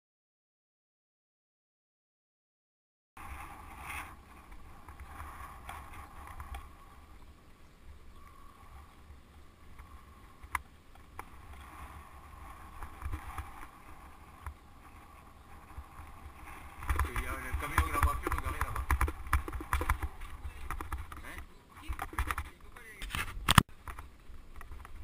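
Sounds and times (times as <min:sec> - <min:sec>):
low wind rumble on microphone: 0:03.2 - 0:22.5
bike tyres rolling over pavement: 0:03.2 - 0:23.0, 0:23.7 - 0:25.0.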